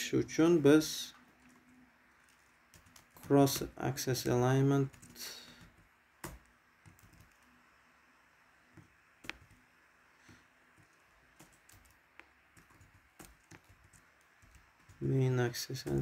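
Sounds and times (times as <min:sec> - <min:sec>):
faint keyboard keystrokes: 0:01.4 - 0:07.6, 0:10.2 - 0:16.0.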